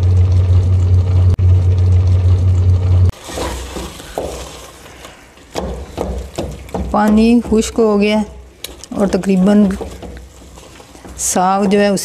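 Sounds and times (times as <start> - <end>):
gas burner rumbling: 0.0 - 12.0
wooden spoon scraping and knocking pot: 3.1 - 12.0.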